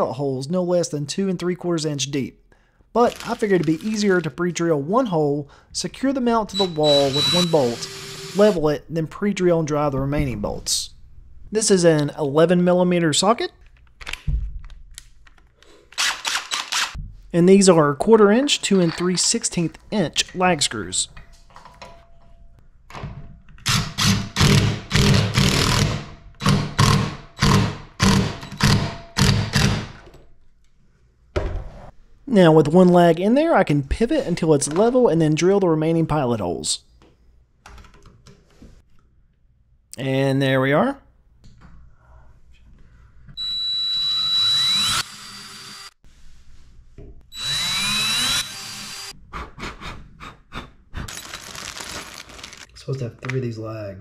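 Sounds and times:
cordless drill driving a screw: 6.9s - 8.6s, 16.0s - 17.0s, 43.4s - 46.0s, 47.3s - 49.1s
plastic bag of screws crinkling: 51.1s - 52.7s.

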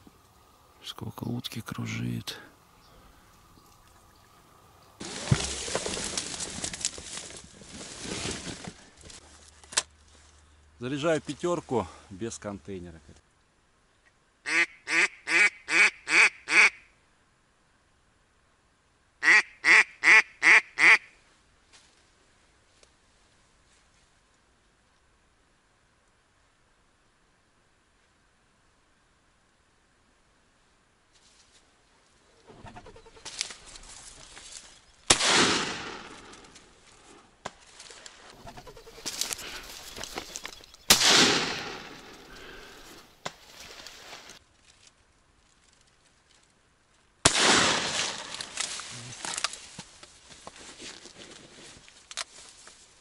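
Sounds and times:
duck quacking: 14.4s - 16.9s, 19.2s - 21.1s
shotgun shot with echo: 35.1s - 36.3s, 40.9s - 42.1s, 47.3s - 48.1s.

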